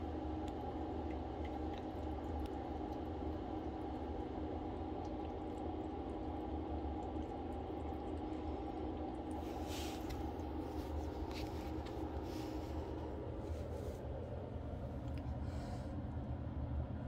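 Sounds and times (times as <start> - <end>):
low room hum: 0.0 - 17.0
faint rustles: 9.4 - 14.2.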